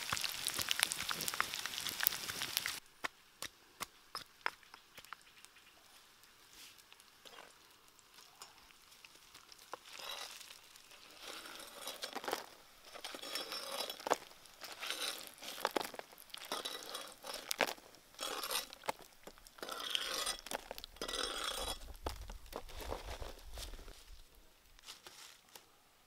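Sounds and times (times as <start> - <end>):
faint oil sizzle: 0.0 - 2.8, 5.5 - 22.6
knife scraping wok: 9.8 - 15.7, 16.4 - 22.0.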